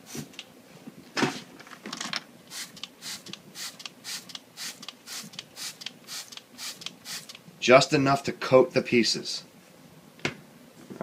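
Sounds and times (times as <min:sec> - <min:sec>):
spray bottle squirting: 0:02.5 - 0:07.4.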